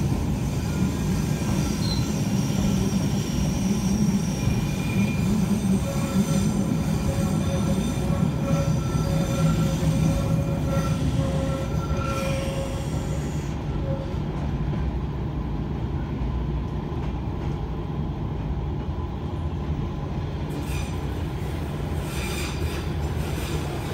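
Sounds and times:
train wheels squealing: 0.0 - 14.5, 20.5 - 21.2, 21.9 - 23.9
train running gear rumble: 0.0 - 23.9.

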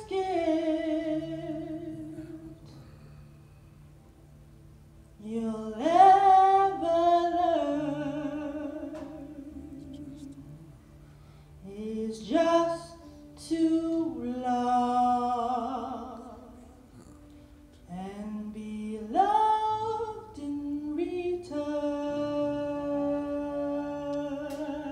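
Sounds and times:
woman singing long notes: 0.0 - 3.1, 5.2 - 10.8, 17.8 - 24.9.

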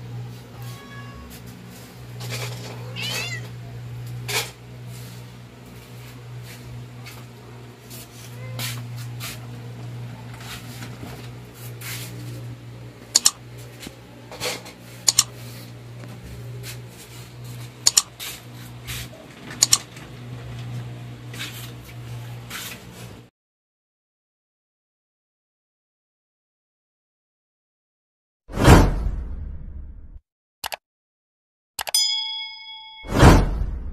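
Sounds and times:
mouse double clicks: 13.2 - 13.4, 15.1 - 15.3, 17.8 - 18.1.

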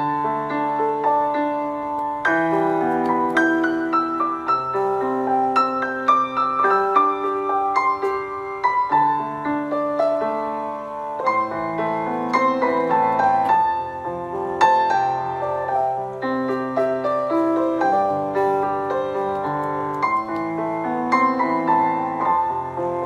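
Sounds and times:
calm piano music: 0.0 - 23.0.

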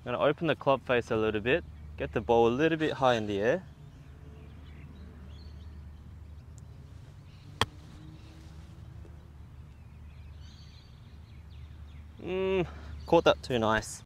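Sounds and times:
golf club striking ball: 7.5 - 8.0.

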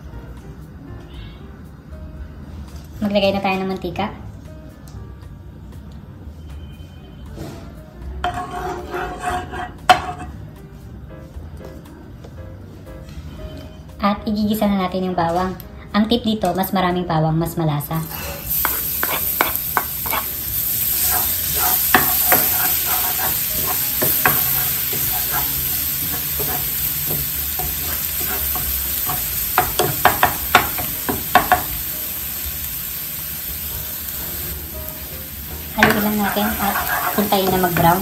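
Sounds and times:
wooden spoon scraping pan: 8.2 - 10.3, 18.1 - 20.4, 21.0 - 30.8, 35.8 - 38.0
garlic sizzling in oil: 18.0 - 38.0.

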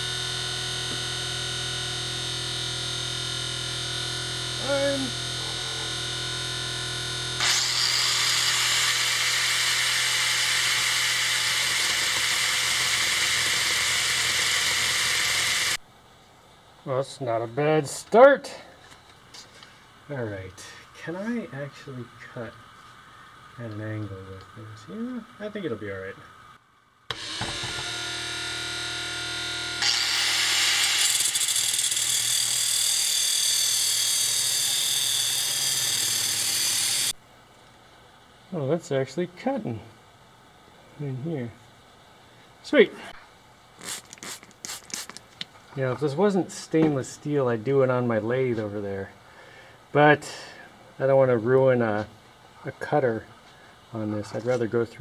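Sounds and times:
angle grinder cutting steel: 0.0 - 15.8, 27.1 - 37.2.

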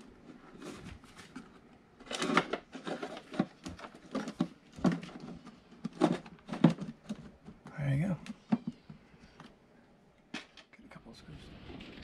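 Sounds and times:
wires and plastic panel rattling: 0.6 - 9.0.

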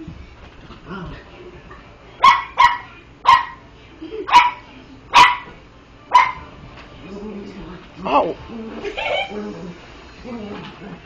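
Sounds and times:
small dog barking: 2.2 - 3.6, 4.3 - 5.5, 6.1 - 6.5.

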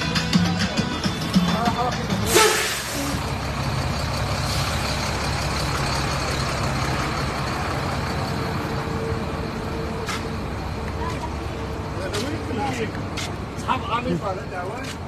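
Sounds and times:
coach engine idling: 0.0 - 14.8
loud air hiss: 2.2 - 3.3.

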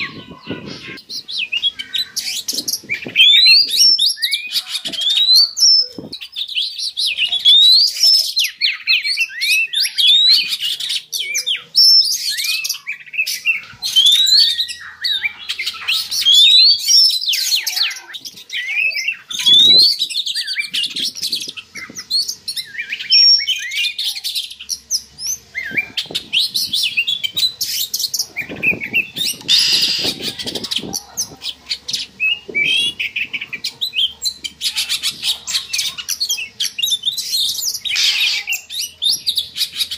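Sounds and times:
bird whistling: 0.0 - 31.4, 32.0 - 39.9.

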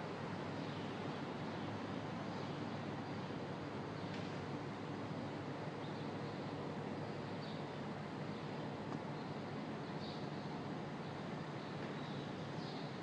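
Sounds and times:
small birds chirping: 8.3 - 13.0.

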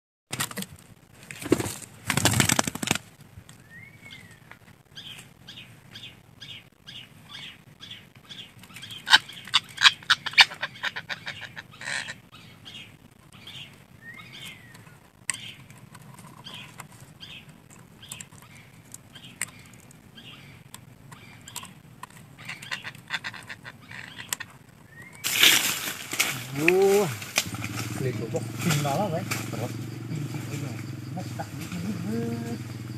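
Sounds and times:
parakeets calling: 5.0 - 15.6, 16.4 - 32.9
loud rustling: 25.2 - 32.9.

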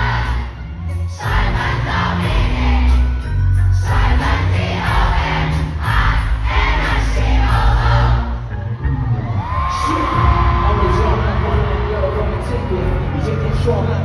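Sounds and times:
live hip-hop music: 0.0 - 14.0
crowd shouting along: 9.2 - 12.9.

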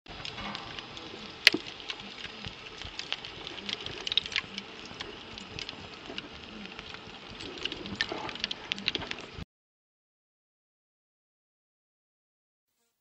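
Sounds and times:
wood fire crackling: 0.1 - 9.4.

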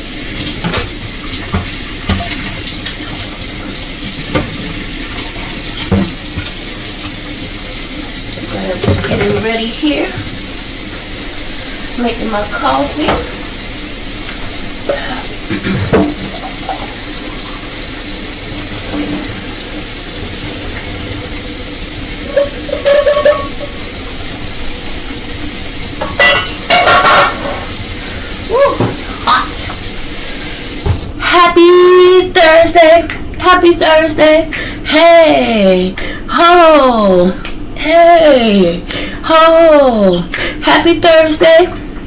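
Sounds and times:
coffee machine hissing: 0.0 - 31.2
woman speaking: 8.5 - 10.2, 12.0 - 13.3, 31.2 - 41.8.

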